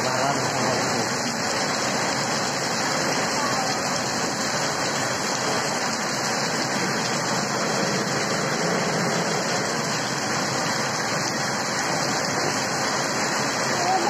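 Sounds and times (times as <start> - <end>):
heavy rain pouring: 0.0 - 14.0.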